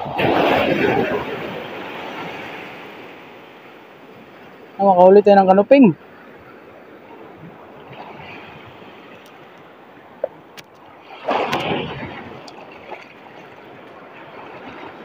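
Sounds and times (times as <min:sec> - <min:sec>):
wave breaking and rushing in: 0:00.0 - 0:05.0, 0:06.0 - 0:15.0
shallow surf washing: 0:00.0 - 0:15.0.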